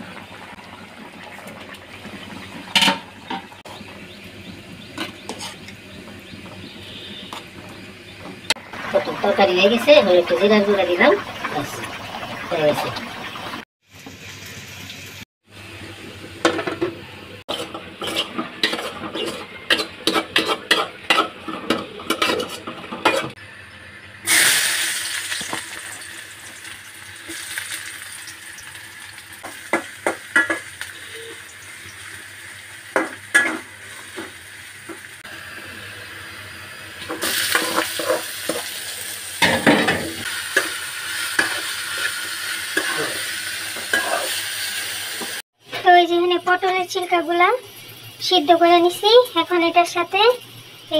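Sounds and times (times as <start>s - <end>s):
garlic sizzling in hot oil: 0.0s - 16.6s, 17.5s - 50.9s
metal spatula scraping a pan: 5.1s - 5.7s, 17.5s - 23.4s, 37.1s - 38.8s, 39.4s - 44.4s.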